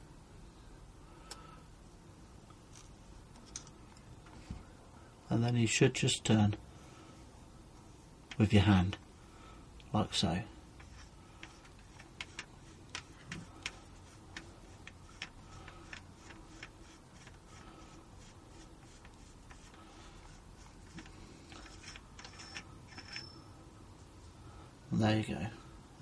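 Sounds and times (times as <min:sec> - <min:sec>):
metal parts clicking: 0:21.0 - 0:23.3.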